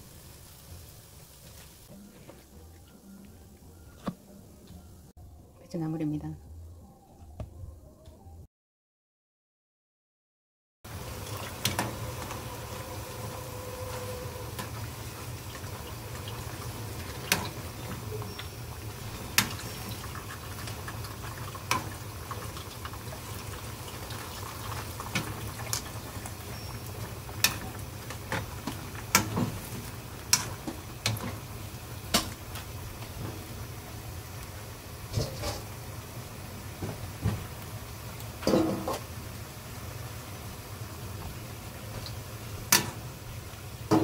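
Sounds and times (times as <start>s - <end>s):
water boiling in a pan: 0.0s - 1.9s, 10.9s - 44.0s.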